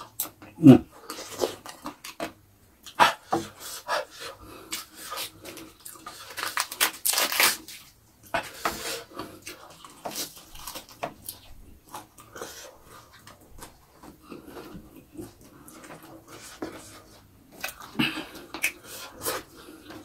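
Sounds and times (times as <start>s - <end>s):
leaves crackling and snapping: 6.3s - 7.8s.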